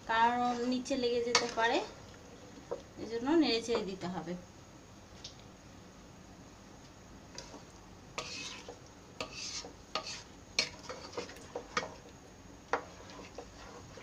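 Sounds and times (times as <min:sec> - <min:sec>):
wooden spoon scraping pan: 0:00.2 - 0:01.9, 0:07.3 - 0:14.0.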